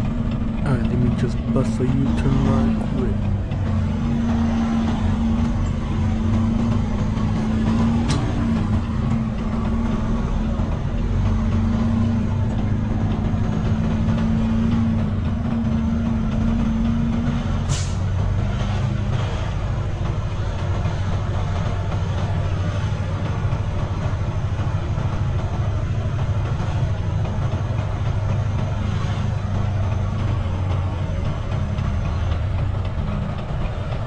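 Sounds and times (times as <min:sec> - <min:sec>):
diesel truck engine running: 0:00.0 - 0:34.0
air brakes hissing: 0:17.6 - 0:18.1.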